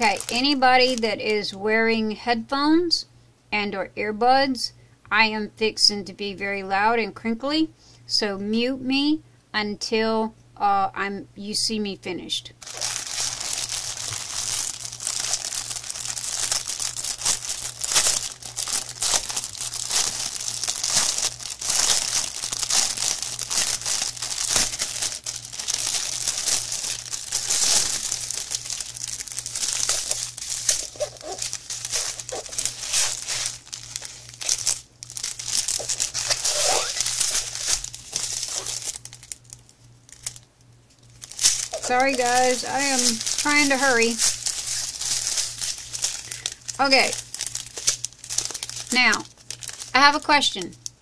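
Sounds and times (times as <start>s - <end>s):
plastic packaging crinkling: 0.0s - 1.6s, 12.6s - 51.0s.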